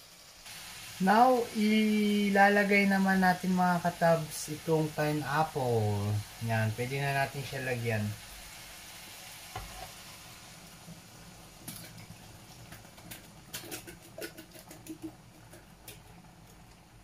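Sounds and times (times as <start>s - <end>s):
fruit pieces tapping into pan: 12.7s - 16.1s.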